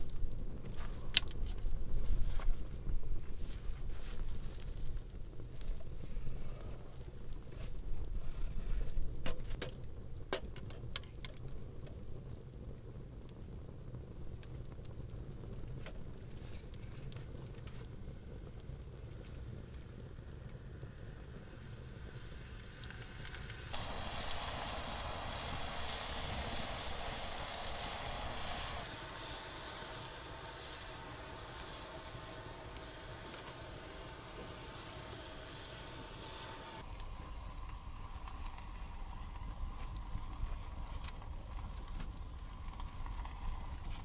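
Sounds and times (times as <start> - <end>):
campfire crackling: 0.0 - 44.0
fire popping: 0.0 - 44.0
loud steady hiss: 21.2 - 44.0.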